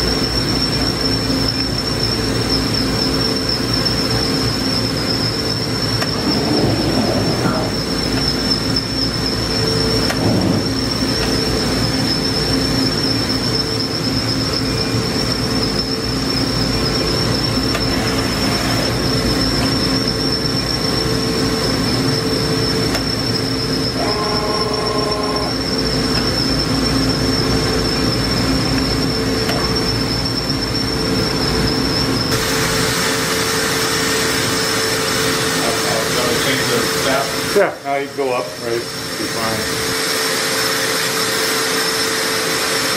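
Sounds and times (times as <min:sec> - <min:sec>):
machine hum with high whine: 0:00.0 - 0:42.9
brief tone: 0:05.6 - 0:12.4, 0:22.9 - 0:27.0
loud hiss: 0:32.3 - 0:42.9.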